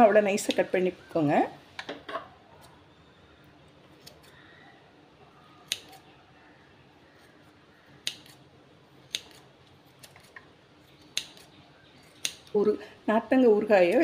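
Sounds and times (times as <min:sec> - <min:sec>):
scissors snipping: 0:05.6 - 0:06.1, 0:08.0 - 0:08.4, 0:09.1 - 0:10.4, 0:11.0 - 0:11.5, 0:12.1 - 0:12.6.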